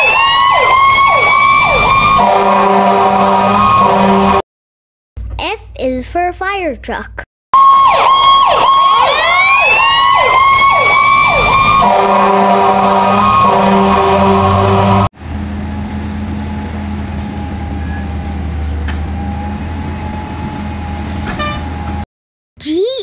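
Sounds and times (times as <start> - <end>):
fire engine siren wailing: 0.0 - 4.4, 7.6 - 22.0
multi-tone horn: 2.2 - 4.4, 11.8 - 15.1, 21.3 - 21.7.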